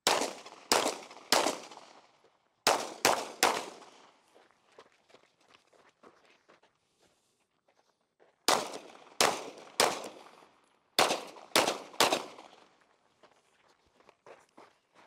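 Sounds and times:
gunshots ringing: 0:00.0 - 0:02.0, 0:02.6 - 0:04.0, 0:08.5 - 0:10.4, 0:11.0 - 0:12.7.

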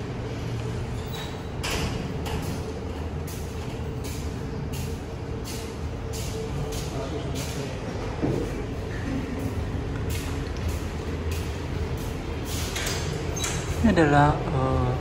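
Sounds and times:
low background hum: 0:00.0 - 0:15.0
footsteps with hissing scuffs: 0:02.4 - 0:13.8.

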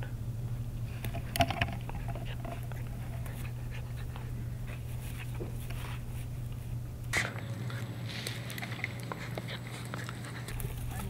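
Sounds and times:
low steady hum: 0:00.0 - 0:11.0
puppy panting: 0:01.1 - 0:06.3, 0:07.6 - 0:11.0
dog chewing on mesh bag: 0:07.4 - 0:11.0.

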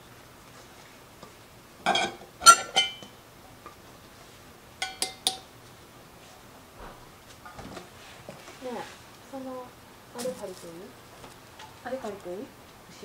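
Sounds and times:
empty metal cans clinking: 0:04.8 - 0:05.5.

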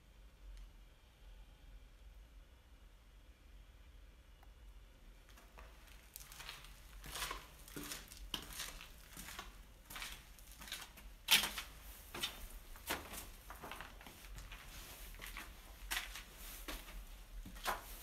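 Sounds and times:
footsteps crunching on rubble: 0:05.3 - 0:18.0.

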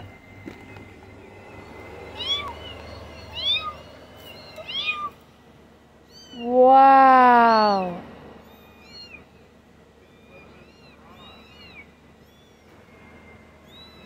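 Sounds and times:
lower drawn-out sound: 0:00.0 - 0:04.6
kittens mewing: 0:01.4 - 0:05.3, 0:05.9 - 0:12.8.

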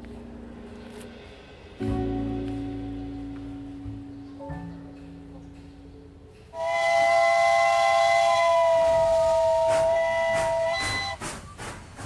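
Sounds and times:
steam exhaust chuffs: 0:06.5 - 0:12.0
steam locomotive whistle: 0:06.6 - 0:11.6.

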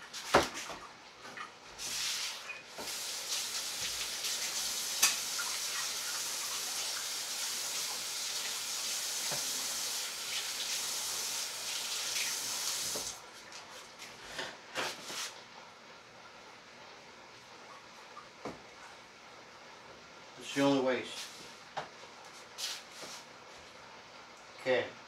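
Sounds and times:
tap water running: 0:01.2 - 0:14.1.

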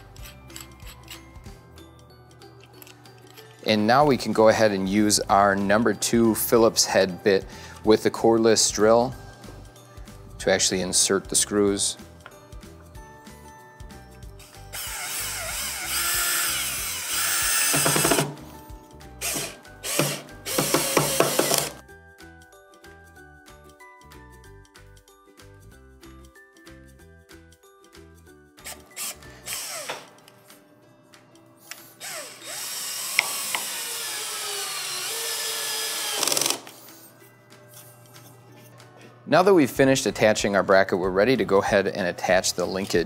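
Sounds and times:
cordless drill driving screws: 0:14.4 - 0:18.3, 0:19.2 - 0:21.8, 0:28.6 - 0:30.1, 0:32.0 - 0:36.8
drill clutch clicking: 0:14.7 - 0:18.3, 0:32.0 - 0:36.7.

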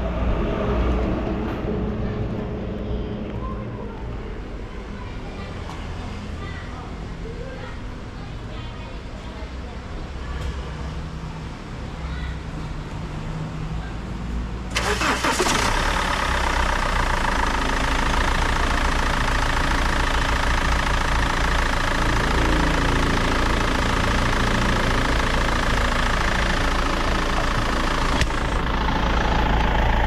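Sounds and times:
diesel engine starting and idling: 0:14.5 - 0:30.0.

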